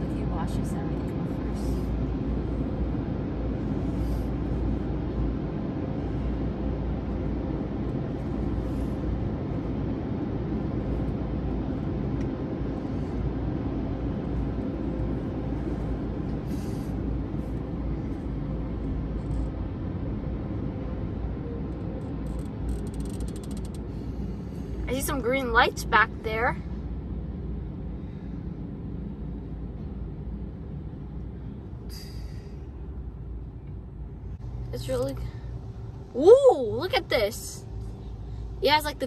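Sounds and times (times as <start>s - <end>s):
low car cabin rumble: 0.0s - 39.0s.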